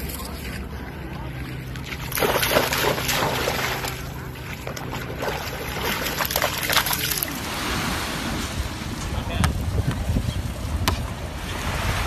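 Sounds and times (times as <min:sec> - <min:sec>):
dog splashing through water: 0:01.6 - 0:08.2.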